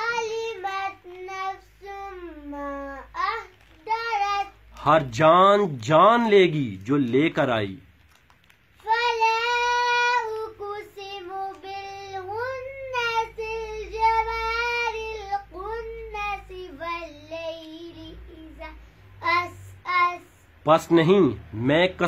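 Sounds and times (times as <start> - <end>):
girl chanting melodically: 0.0 - 4.8, 8.8 - 20.6.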